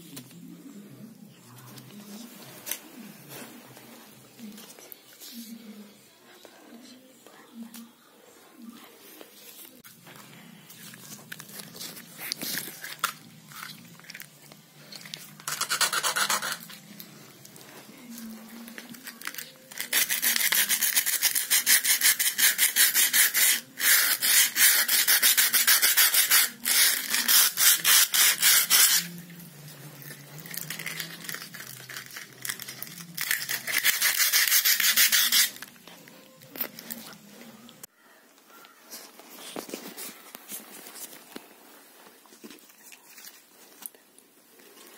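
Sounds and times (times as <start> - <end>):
sandpaper scraping a painted wall: 15.5 - 16.7, 19.8 - 29.2, 30.5 - 35.6.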